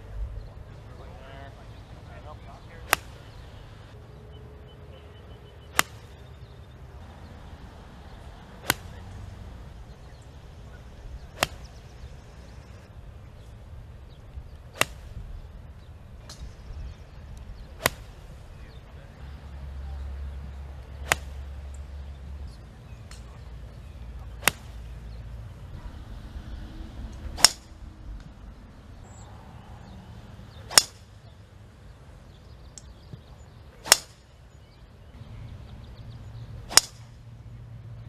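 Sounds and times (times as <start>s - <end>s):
golf club striking ball: 2.8s - 3.5s, 5.7s - 6.3s, 8.6s - 9.4s, 11.2s - 12.6s, 14.5s - 15.2s, 16.2s - 18.2s, 20.8s - 22.2s, 23.0s - 25.0s, 27.1s - 28.4s, 30.6s - 31.1s, 33.8s - 34.2s, 36.6s - 37.2s.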